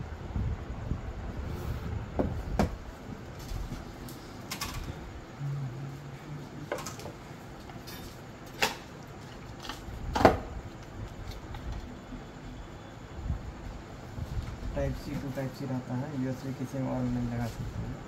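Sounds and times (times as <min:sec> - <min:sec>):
cardboard box knocks and taps: 0:02.2 - 0:02.8.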